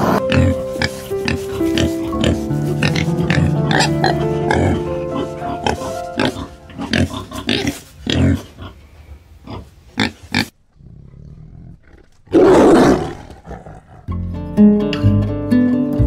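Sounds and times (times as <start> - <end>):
guitar music: 0.0 - 7.0, 14.1 - 16.0
pig grunting: 0.0 - 14.3
tiger roaring: 10.7 - 14.3.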